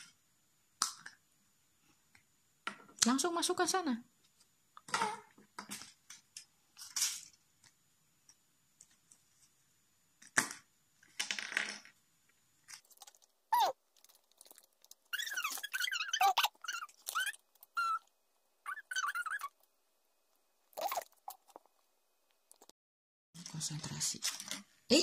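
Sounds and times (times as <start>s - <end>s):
short high squeaks: 15.1s - 18.1s, 18.7s - 19.6s.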